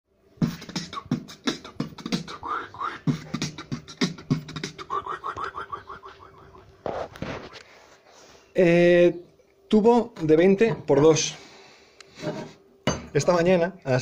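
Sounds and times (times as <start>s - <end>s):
rapid rising chirps: 0.4s - 6.7s
beatbox thumps: 0.4s - 7.0s.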